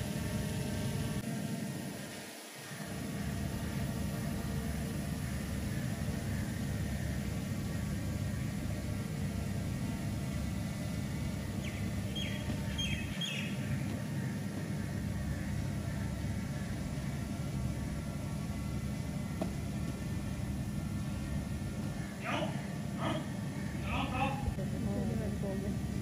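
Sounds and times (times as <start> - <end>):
low outdoor rumble: 0.0 - 26.0
high bird chirps: 11.6 - 13.9.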